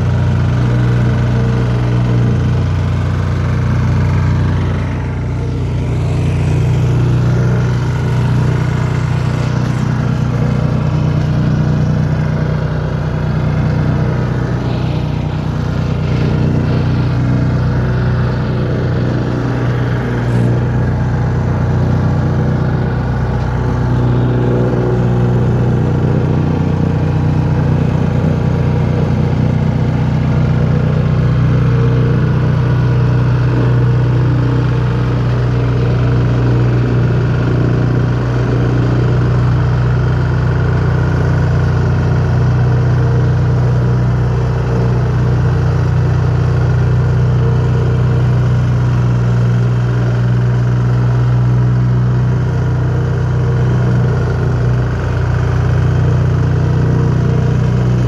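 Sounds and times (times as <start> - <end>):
plate compactor running: 0.0 - 58.0.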